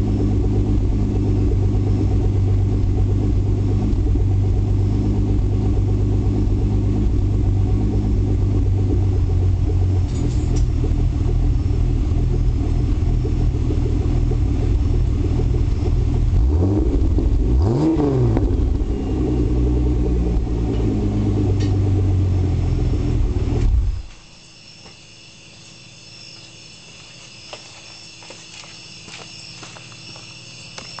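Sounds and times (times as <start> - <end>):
car engine idling: 0.0 - 31.0
faint high whine: 18.5 - 20.8, 22.3 - 31.0.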